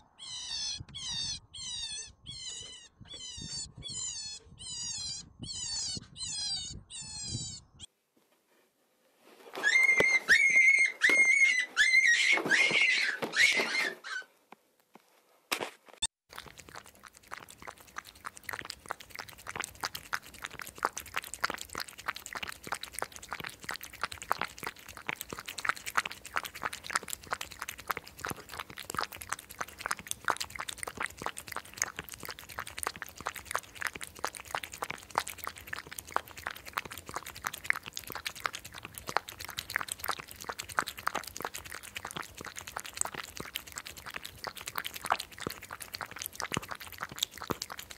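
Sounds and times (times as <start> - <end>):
hedgehog crunching and rustling: 15.6 - 47.9.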